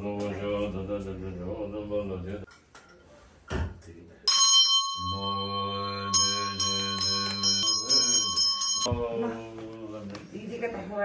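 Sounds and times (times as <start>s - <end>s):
ringing bell tones: 4.3s - 9.0s.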